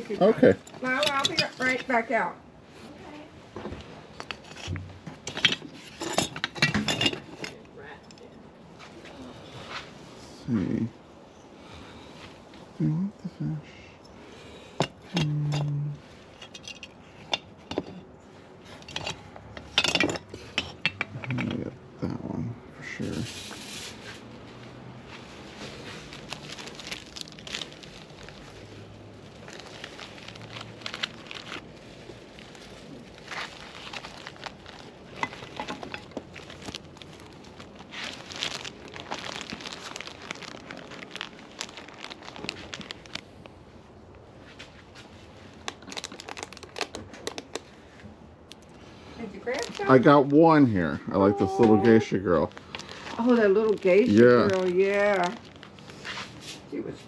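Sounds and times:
crinkly bag rustling: 0.0s - 8.0s, 22.8s - 57.0s
glass ornaments clinking: 5.3s - 7.6s
person humming: 51.2s - 52.0s.

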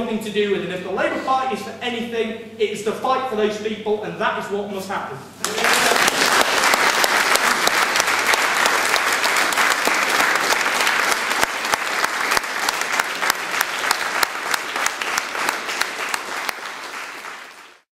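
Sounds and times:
audience applauding: 5.4s - 17.9s.

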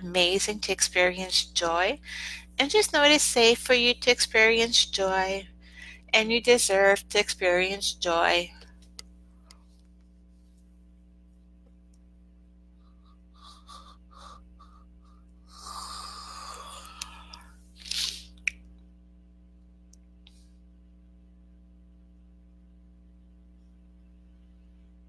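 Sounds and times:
low mains hum: 0.0s - 25.0s
woman breathing: 2.0s - 2.6s, 5.6s - 6.1s, 12.8s - 17.6s.

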